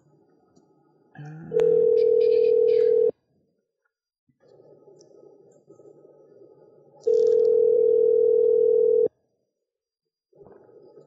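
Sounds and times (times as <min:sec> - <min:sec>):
telephone ringback tone: 0:01.6 - 0:03.1, 0:07.1 - 0:09.1.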